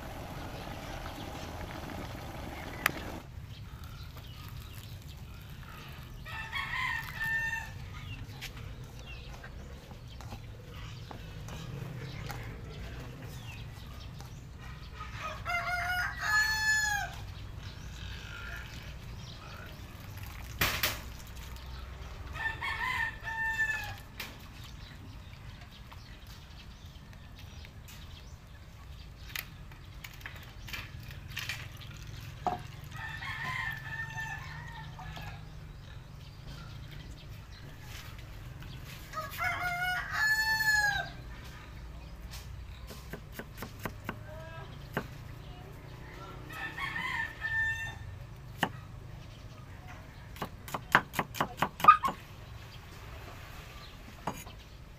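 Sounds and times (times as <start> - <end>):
rooster crowing: 15.2 - 17.2, 39.2 - 41.2, 46.5 - 48.1.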